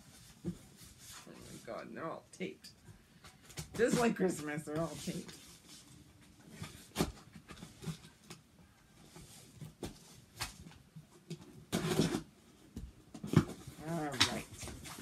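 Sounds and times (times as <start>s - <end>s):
tape and cardboard rustling: 3.2s - 15.0s.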